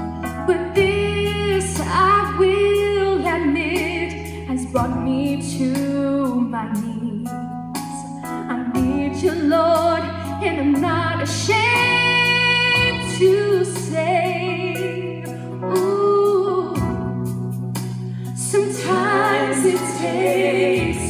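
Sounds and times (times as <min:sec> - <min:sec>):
instrumental accompaniment with beat: 0:00.0 - 0:21.0
woman singing with vibrato: 0:18.4 - 0:21.0.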